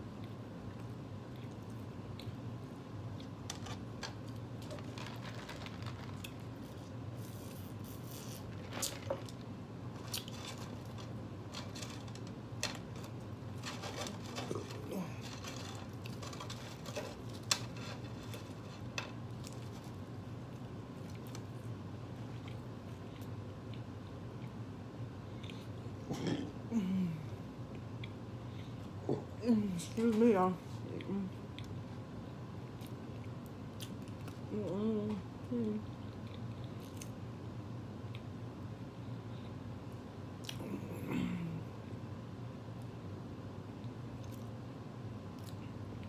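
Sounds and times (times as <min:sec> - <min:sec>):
person chewing food: 0:00.0 - 0:24.6, 0:25.2 - 0:26.4, 0:27.6 - 0:29.2, 0:36.0 - 0:37.2.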